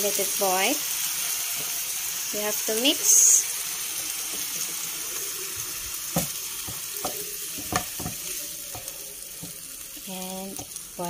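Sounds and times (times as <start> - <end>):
meat simmering with bubbling sizzle: 0.0 - 11.0
spatula knocking against pan: 6.2 - 9.6.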